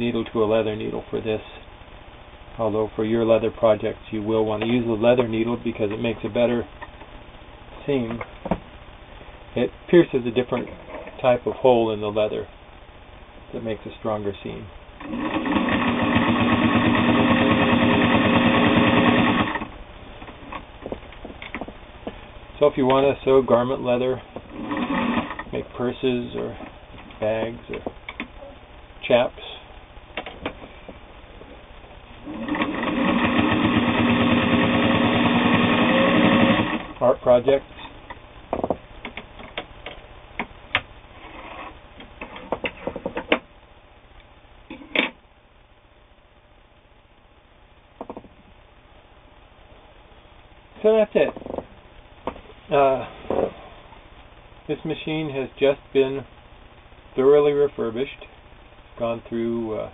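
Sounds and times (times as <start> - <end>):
sewing machine running: 15.0 - 19.7, 24.5 - 25.5, 32.2 - 37.0.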